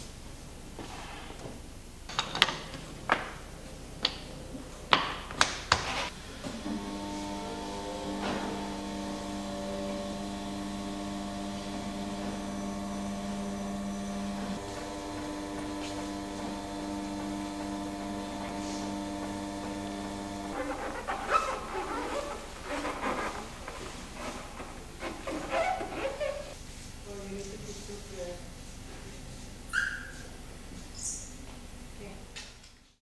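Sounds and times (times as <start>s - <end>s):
printing press humming: 6.1s - 21.1s.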